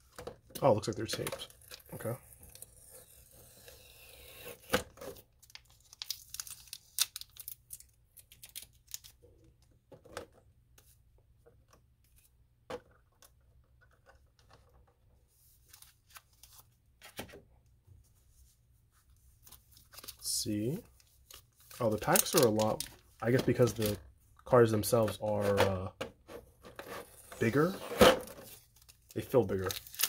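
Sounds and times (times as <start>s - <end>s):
foil wrappers crinkling: 21.2s - 24.0s, 28.6s - 30.0s
tape tearing: 26.8s - 30.0s.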